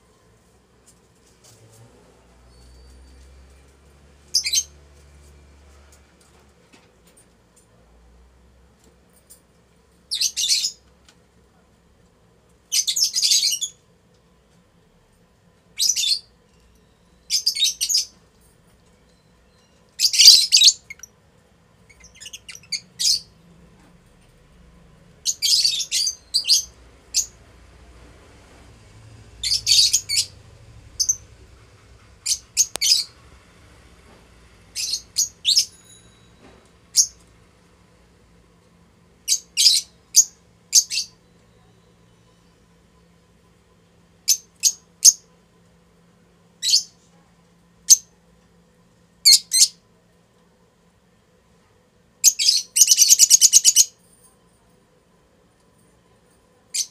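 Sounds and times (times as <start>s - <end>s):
lovebirds chirping: 19.4s - 21.1s, 21.9s - 23.3s, 25.2s - 27.4s, 29.4s - 30.4s, 31.0s - 31.3s, 32.2s - 33.2s, 52.2s - 53.9s.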